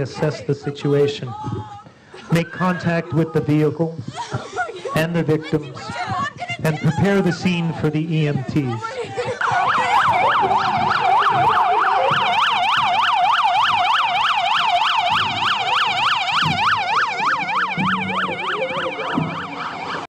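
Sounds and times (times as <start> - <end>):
siren yelping: 9.4 - 20.0.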